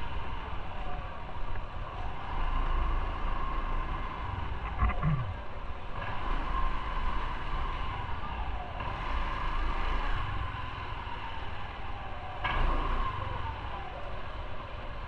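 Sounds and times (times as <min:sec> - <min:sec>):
road noise: 0:00.0 - 0:15.0
motorcycle engine rumbling: 0:04.2 - 0:05.7.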